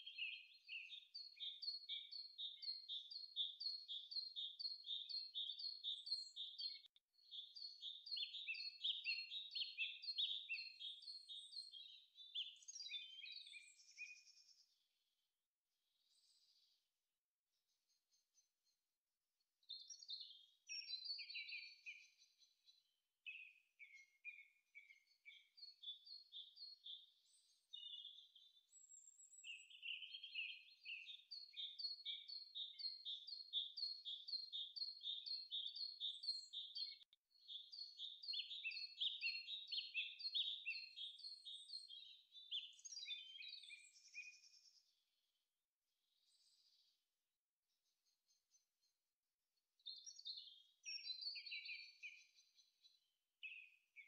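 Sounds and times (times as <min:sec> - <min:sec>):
faint birdsong chirping: 0:00.0 - 0:15.1, 0:15.9 - 0:16.9, 0:17.6 - 0:45.3, 0:46.0 - 0:47.1, 0:47.7 - 0:54.0.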